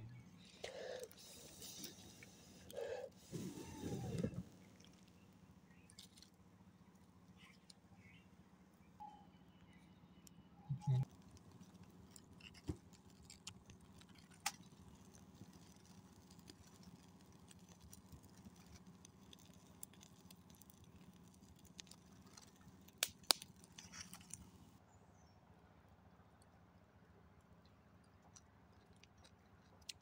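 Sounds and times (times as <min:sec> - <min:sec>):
fire crackling and popping: 0:00.1 - 0:09.0, 0:10.7 - 0:24.8.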